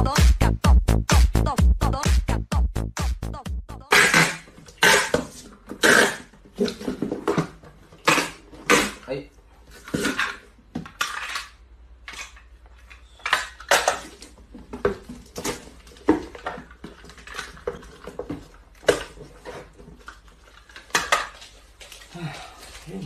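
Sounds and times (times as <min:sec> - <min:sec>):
packing tape pulled off dispenser: 0:03.9 - 0:06.3, 0:08.0 - 0:08.9.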